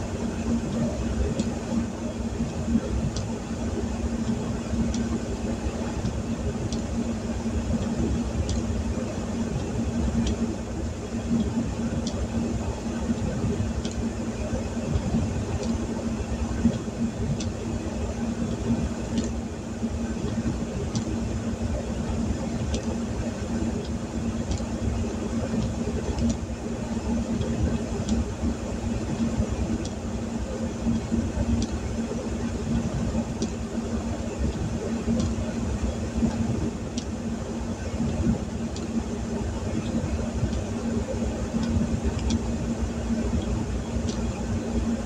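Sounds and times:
faint tick: 0:06.0 - 0:06.9, 0:09.6 - 0:10.4, 0:20.2 - 0:21.1, 0:22.7 - 0:22.9, 0:23.8 - 0:24.7, 0:29.1 - 0:30.0, 0:30.9 - 0:31.8, 0:34.5 - 0:35.4, 0:36.3 - 0:37.1, 0:38.0 - 0:38.9, 0:41.6 - 0:42.4, 0:43.4 - 0:44.3.

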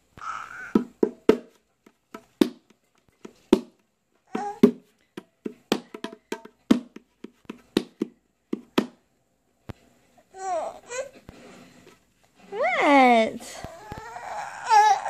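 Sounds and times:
hand slapping plastic toy tray: 0:00.8 - 0:03.8, 0:04.6 - 0:09.0.

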